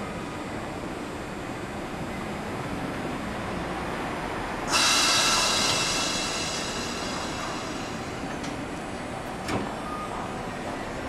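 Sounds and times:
air brake hiss: 0:04.7 - 0:08.6.

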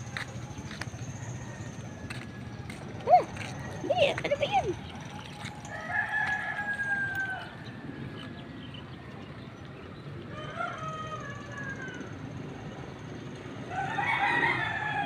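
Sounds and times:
rooster crowing: 0:05.4 - 0:07.9, 0:10.3 - 0:12.2, 0:13.7 - 0:15.0.

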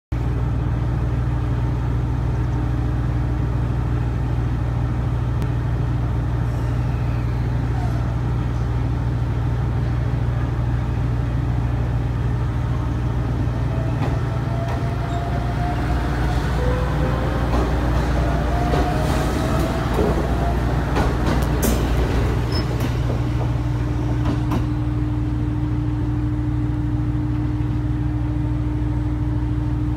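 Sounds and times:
train low hum: 0:00.1 - 0:29.9
train motor whine: 0:12.6 - 0:26.0.

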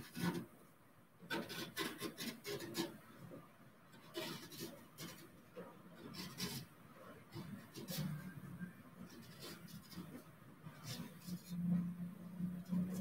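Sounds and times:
hand gouge scraping wood block: 0:01.3 - 0:03.0, 0:04.0 - 0:06.7.

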